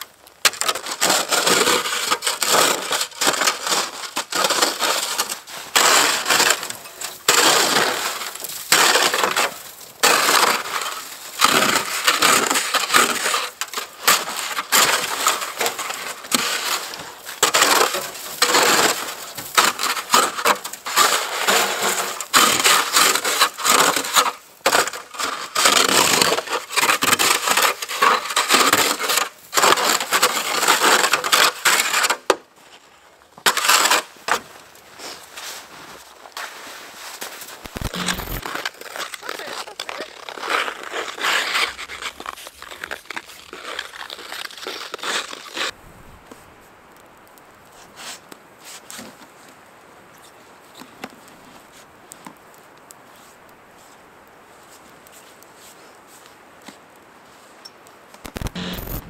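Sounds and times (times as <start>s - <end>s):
snow shovel scraping snow: 1.0s - 13.5s, 35.0s - 45.8s, 58.4s - 59.0s.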